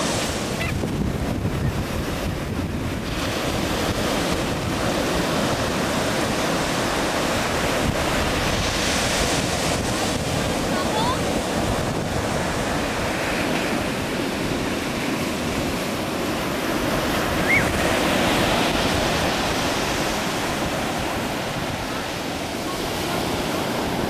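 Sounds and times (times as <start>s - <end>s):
waves breaking on beach: 0.0s - 24.0s
wind noise on microphone: 0.0s - 24.0s
short high cry: 17.4s - 17.7s.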